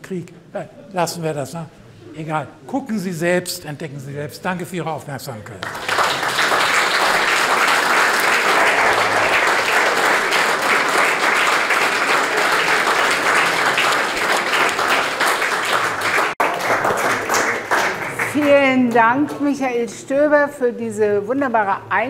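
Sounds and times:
audience applauding: 5.6s - 18.7s.

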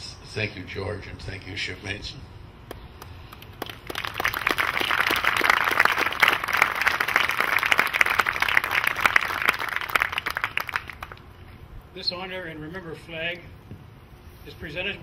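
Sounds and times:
crowd applauding: 3.3s - 11.3s.

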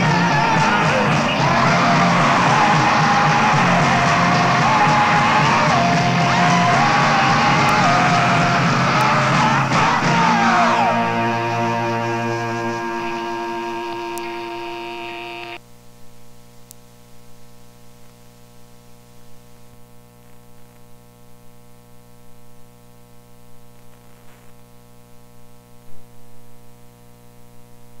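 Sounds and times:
band playing sustained chord: 0.0s - 15.6s
electrical mains hum: 0.0s - 28.0s.

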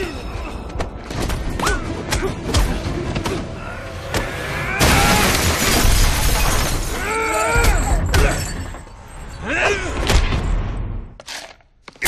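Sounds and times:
shattering crash: 4.8s - 7.1s.

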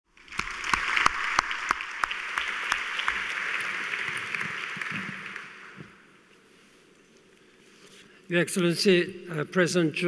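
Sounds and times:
audience applauding: 0.1s - 6.1s
loud single claps: 0.3s - 6.0s.

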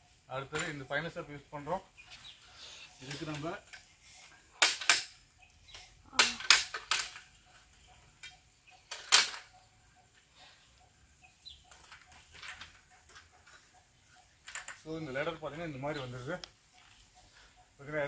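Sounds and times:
ladder hinges clacking metallically: 4.6s - 5.2s, 6.2s - 7.4s, 8.2s - 9.6s.

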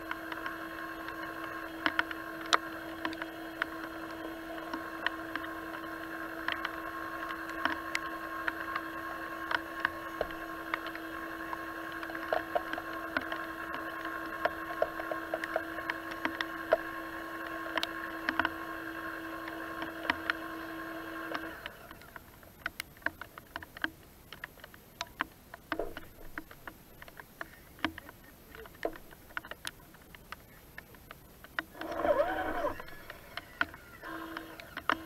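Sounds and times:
light clicks and ticks: 0.0s - 20.4s, 21.2s - 35.0s
electric winch motor whine: 0.0s - 22.1s, 31.7s - 35.0s.

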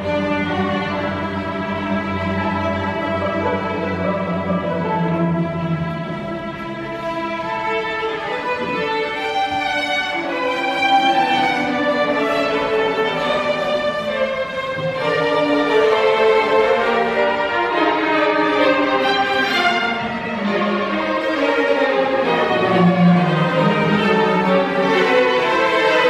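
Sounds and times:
violin melody: 0.0s - 26.0s.

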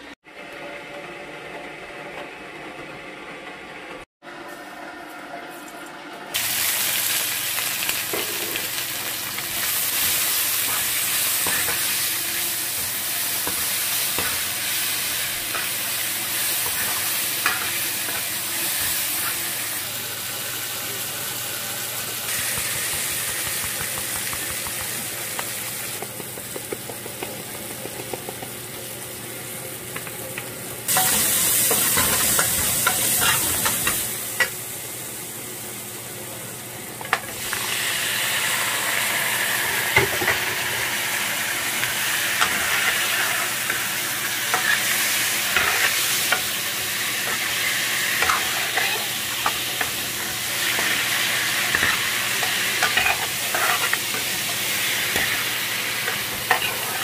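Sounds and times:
onions sizzling in hot oil: 6.3s - 57.0s
metal spoon scraping pan: 51.7s - 54.2s.

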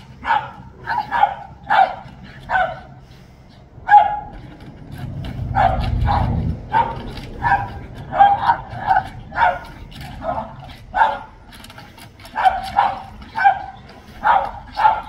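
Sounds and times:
low rumble: 0.0s - 11.5s
dog barking: 0.1s - 3.0s, 3.8s - 4.5s, 5.5s - 11.5s, 12.2s - 15.0s.

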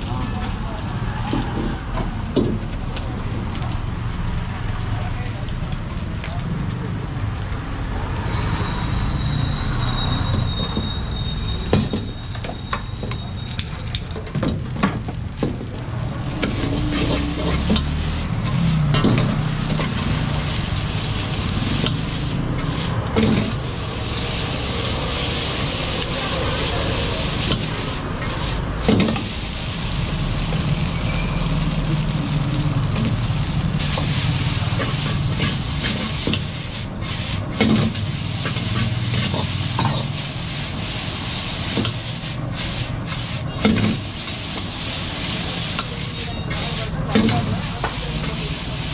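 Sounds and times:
noodles sizzling in a wok: 6.9s - 48.9s
ladle scraping and clanking on wok: 16.3s - 29.8s, 32.9s - 48.9s.

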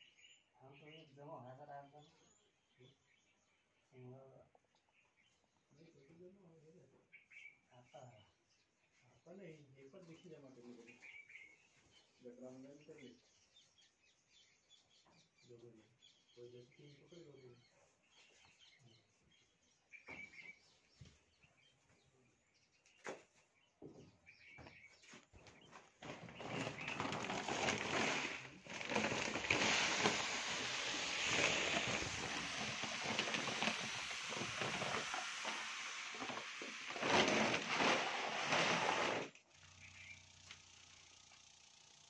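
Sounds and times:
bird chirps: 7.0s - 27.2s, 39.6s - 40.4s
grain pouring onto a heap: 26.0s - 39.3s.

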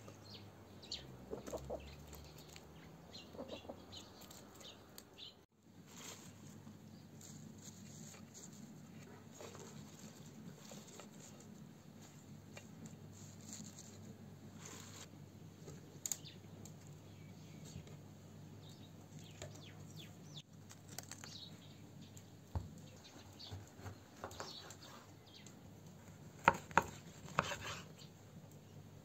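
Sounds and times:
leaves and fruit rustling: 1.2s - 15.1s, 20.4s - 21.8s.

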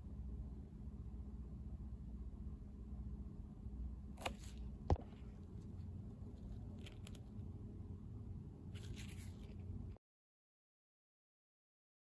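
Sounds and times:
low steady hum: 0.0s - 10.0s
gloved hand rubbing phone: 8.8s - 9.7s.

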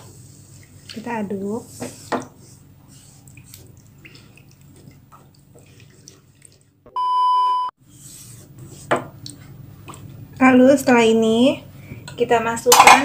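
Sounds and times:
spatula stirring sauce in pan: 0.0s - 6.8s, 7.8s - 10.0s
electronic beep: 7.0s - 7.7s.

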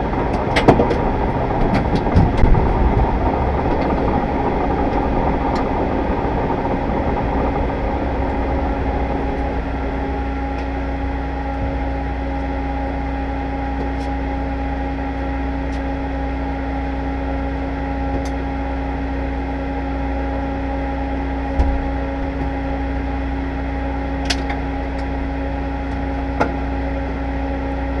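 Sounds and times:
deep mechanical hum: 0.0s - 28.0s
low thump: 21.6s - 22.4s.

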